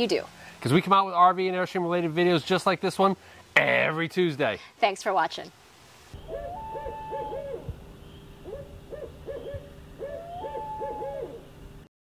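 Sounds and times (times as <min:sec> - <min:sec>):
low steady hum: 0:05.5 - 0:11.9
owl hooting: 0:06.2 - 0:11.6.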